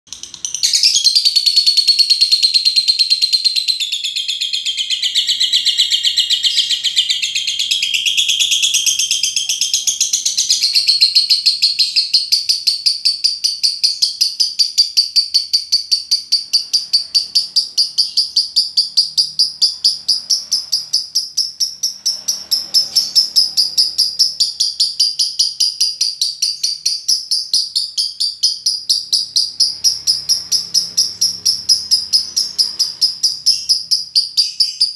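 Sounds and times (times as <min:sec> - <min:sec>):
lovebird singing: 0:00.1 - 0:34.9.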